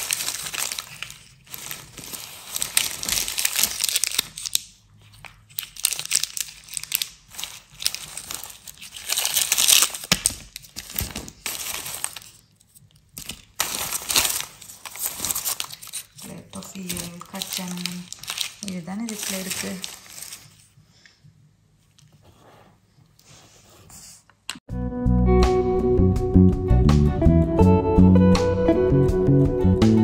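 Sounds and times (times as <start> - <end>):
burlap bag rustling: 0.0 - 4.6, 5.8 - 12.5, 13.2 - 20.8.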